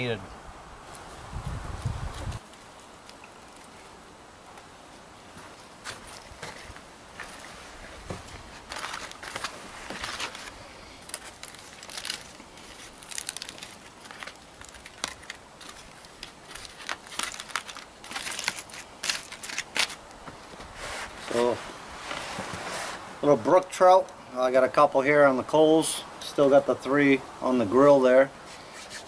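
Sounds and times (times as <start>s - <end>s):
foil crinkling and tearing: 8.5s - 20.1s.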